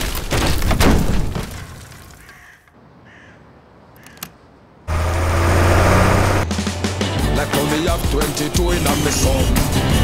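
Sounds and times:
faint crow-like caws: 0:02.1 - 0:04.4
dramatic music with heavy impacts: 0:06.4 - 0:10.0.

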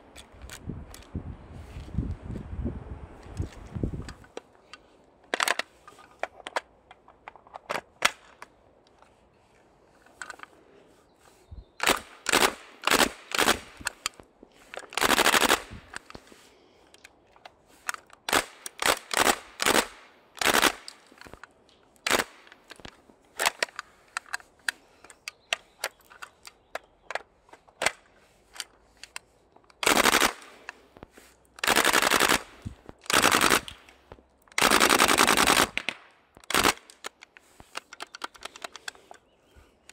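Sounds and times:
full-auto gun bursts: 0:11.8 - 0:13.8, 0:15.0 - 0:15.7, 0:18.3 - 0:21.0, 0:29.8 - 0:30.6, 0:31.6 - 0:33.8, 0:34.6 - 0:37.0.

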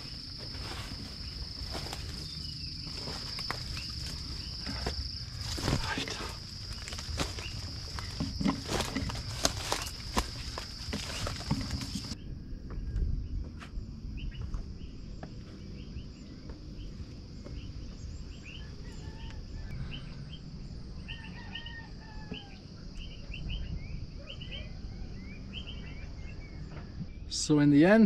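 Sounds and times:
footsteps through undergrowth: 0:00.0 - 0:12.2.

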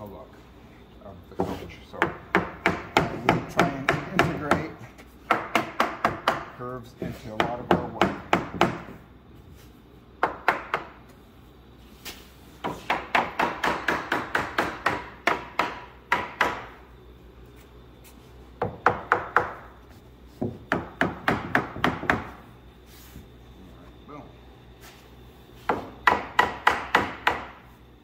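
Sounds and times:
hammer tapping on wood: 0:01.4 - 0:06.5.

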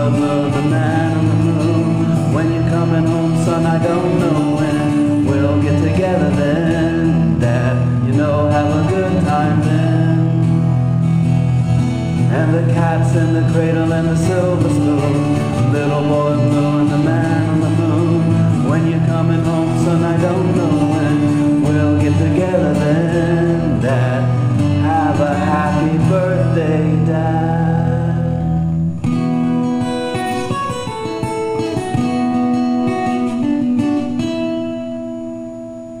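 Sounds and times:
person singing: 0:00.0 - 0:10.7, 0:12.2 - 0:28.7
acoustic guitar strumming: 0:00.0 - 0:36.0.

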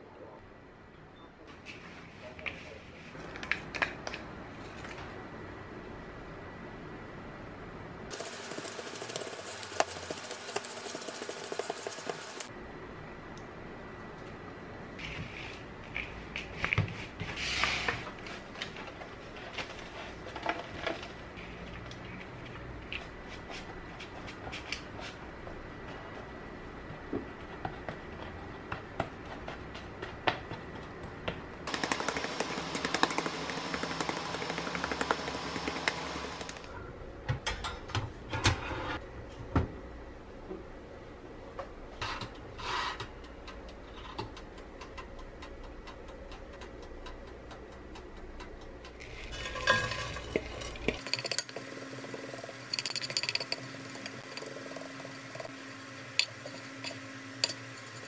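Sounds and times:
spoon stirring granola in pan: 0:08.1 - 0:12.4.

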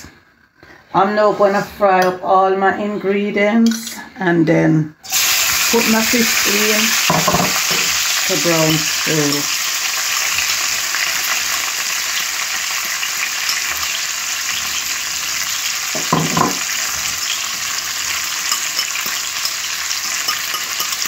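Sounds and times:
vegetables sizzling in hot oil: 0:05.0 - 0:21.0.

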